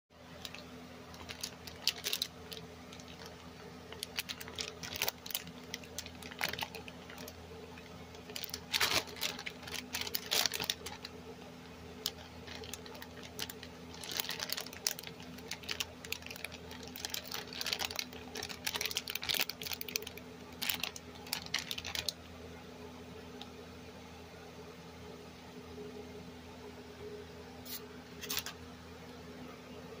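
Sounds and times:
steady low hum: 0:00.1 - 0:30.0
plastic packaging crinkling: 0:00.2 - 0:22.2, 0:27.7 - 0:28.6.

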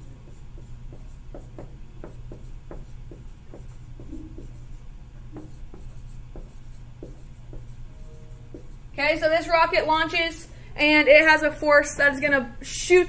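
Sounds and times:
marker writing on whiteboard: 0:00.0 - 0:09.3
steady low hum: 0:00.0 - 0:13.0.

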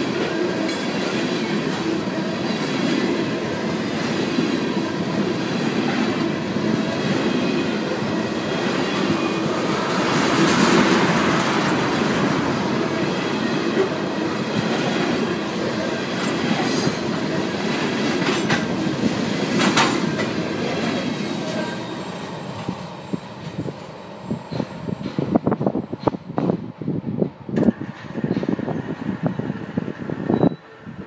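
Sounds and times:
train wheels rumbling on rails: 0:00.0 - 0:31.0
wheels clickety-clack: 0:17.8 - 0:18.8, 0:19.5 - 0:21.6.

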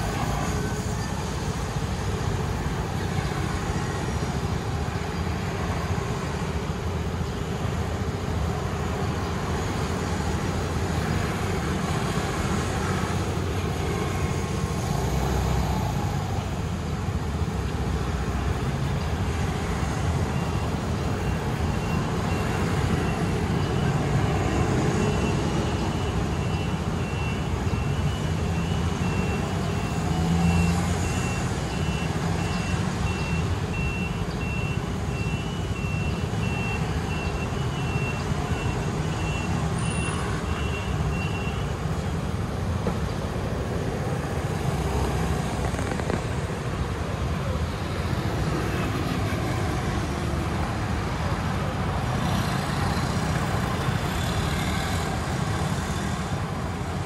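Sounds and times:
scooter and car engines passing: 0:00.0 - 0:57.0
vehicle warning beeper: 0:20.3 - 0:41.7.

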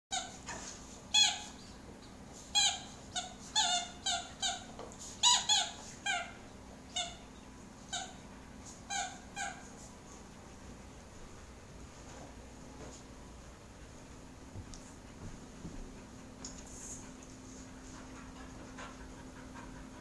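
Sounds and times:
squeaky dog toy squeaking: 0:01.1 - 0:01.5, 0:02.5 - 0:07.2, 0:07.9 - 0:08.2, 0:08.9 - 0:09.6.

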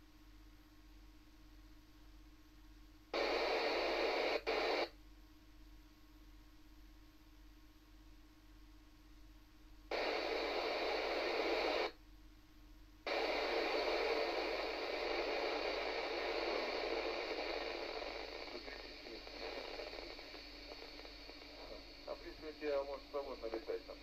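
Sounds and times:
radio static hiss: 0:03.1 - 0:05.0, 0:09.9 - 0:12.0, 0:13.0 - 0:24.0.

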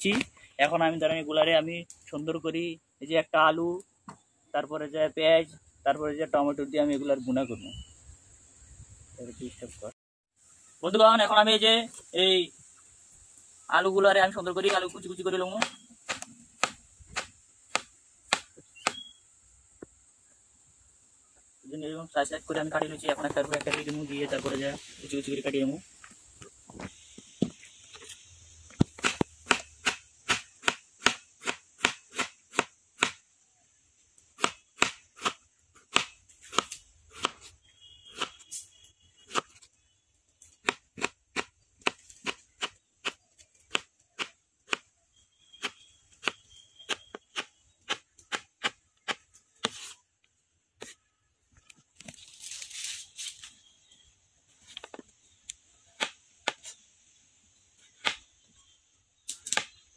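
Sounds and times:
knife chopping on wooden board: 0:15.6 - 0:19.0, 0:45.6 - 0:49.9.

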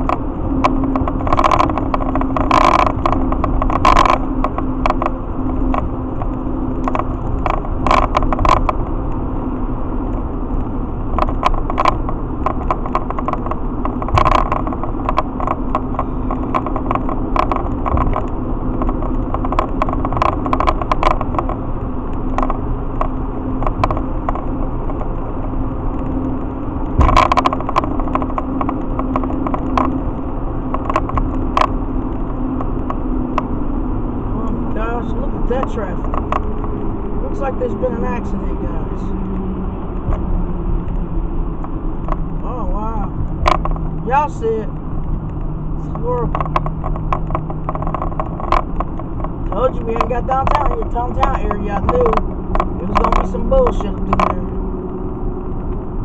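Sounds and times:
engine drone and road noise: 0:00.0 - 0:56.0
short clicks and knocks: 0:11.2 - 0:21.6.

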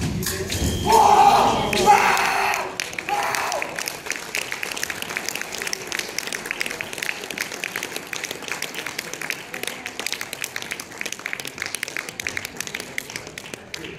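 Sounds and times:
audience applauding: 0:01.3 - 0:13.9.

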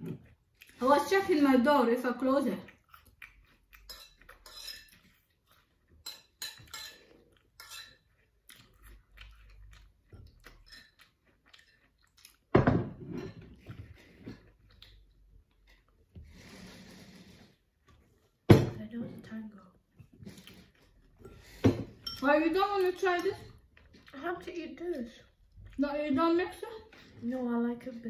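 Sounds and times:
close-up chewing: 0:00.0 - 0:00.8, 0:02.6 - 0:06.0, 0:07.0 - 0:12.5, 0:13.6 - 0:16.2, 0:20.0 - 0:21.6, 0:23.5 - 0:25.9
cutlery clinking on ceramic plates: 0:03.8 - 0:05.1, 0:06.0 - 0:08.1, 0:12.6 - 0:13.7, 0:21.6 - 0:23.5.

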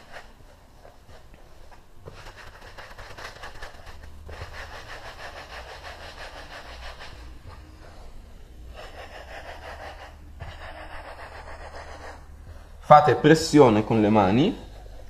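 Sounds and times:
hands rolling dough on board: 0:00.0 - 0:07.7.

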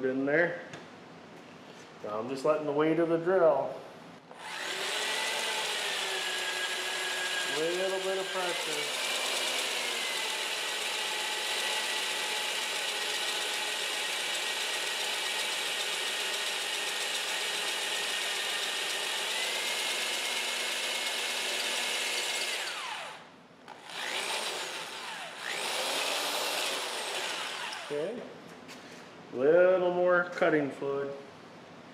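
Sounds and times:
electric drill drilling metal: 0:04.3 - 0:28.1.

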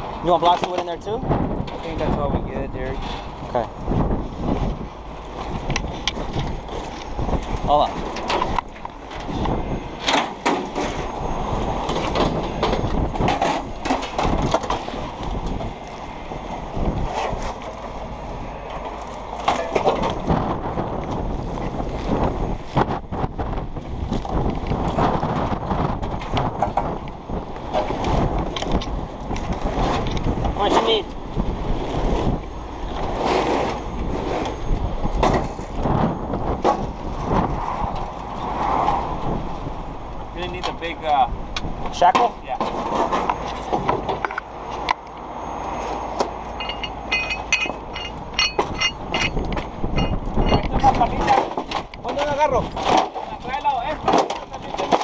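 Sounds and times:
tow truck engine rumbling: 0:00.0 - 0:55.0
wind buffeting microphone: 0:00.0 - 0:55.0
metal clanks and rattles: 0:11.8 - 0:15.7, 0:19.4 - 0:20.4, 0:46.5 - 0:55.0.

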